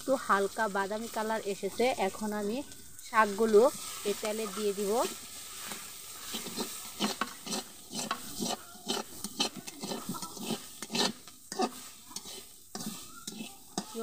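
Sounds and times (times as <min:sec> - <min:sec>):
frying sizzle: 0:00.0 - 0:14.0
metal spatula scraping pan: 0:03.3 - 0:14.0.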